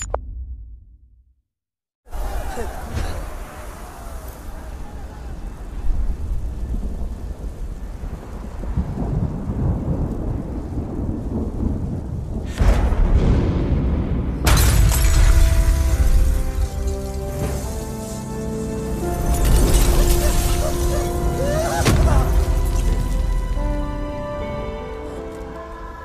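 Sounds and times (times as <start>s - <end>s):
thunderclap: 2.5s - 17.9s
deep thunder rumble: 3.0s - 16.7s
cinematic music score: 12.4s - 26.0s
glass shattering: 14.5s - 17.9s, 19.0s - 21.1s.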